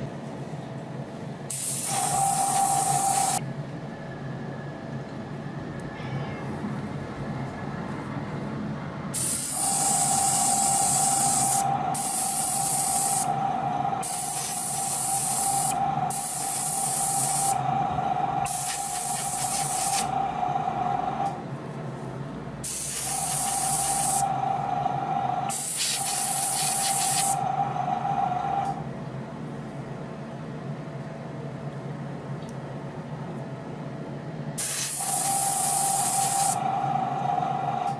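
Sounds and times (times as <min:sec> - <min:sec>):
steady mid-pitched whine: 0:00.0 - 0:30.9, 0:33.8 - 0:37.9
airbrush spraying hiss: 0:01.5 - 0:03.4, 0:09.1 - 0:13.3, 0:14.0 - 0:17.6, 0:18.4 - 0:20.1, 0:22.6 - 0:24.3, 0:25.5 - 0:27.4, 0:34.6 - 0:36.6.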